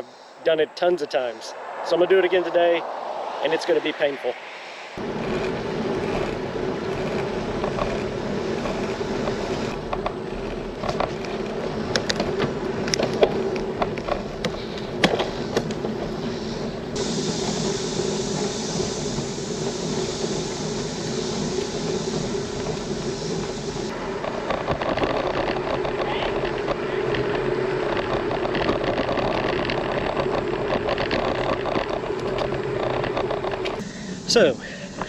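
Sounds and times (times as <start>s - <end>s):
bicycle tyres on road: 0.0s - 35.0s
wind rushing: 1.4s - 9.9s, 11.6s - 24.9s
high hiss: 14.6s - 24.0s, 33.7s - 35.0s.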